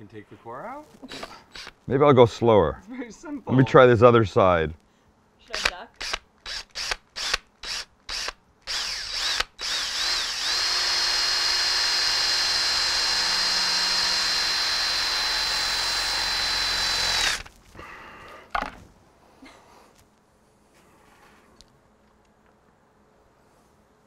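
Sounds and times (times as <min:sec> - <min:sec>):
cordless drill whining: 0:01.1 - 0:01.8, 0:06.0 - 0:17.5
drill trigger pulses: 0:01.1 - 0:01.8, 0:05.6 - 0:17.5.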